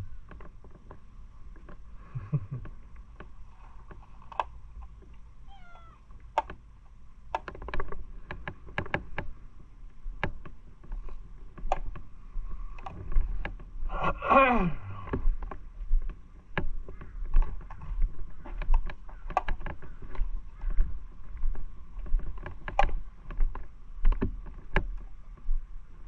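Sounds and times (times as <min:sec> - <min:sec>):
cat meowing: 0:05.5 - 0:06.0.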